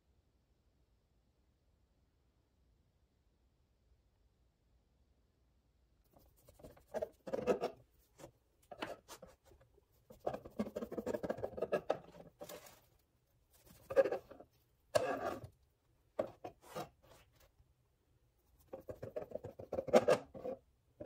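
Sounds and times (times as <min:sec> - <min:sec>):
hand rubbing bread: 0:06.1 - 0:15.5
bread knife sawing through bread: 0:15.0 - 0:15.5.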